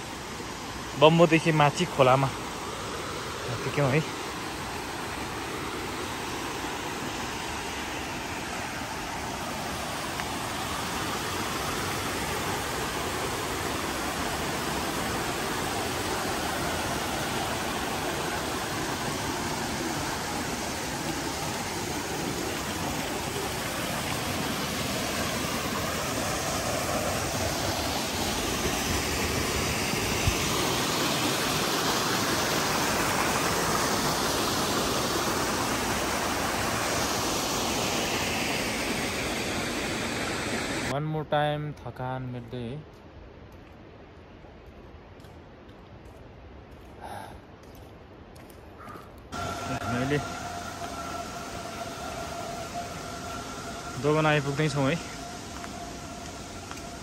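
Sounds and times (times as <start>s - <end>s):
river water rushing over rocks: 0.0s - 40.9s, 49.4s - 57.0s.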